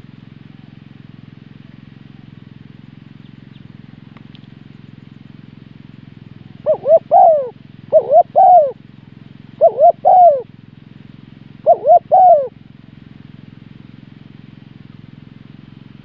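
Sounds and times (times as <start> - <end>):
steady low hum: 0.0 - 16.0
dove cooing: 6.5 - 8.8, 9.5 - 10.5, 11.6 - 12.6.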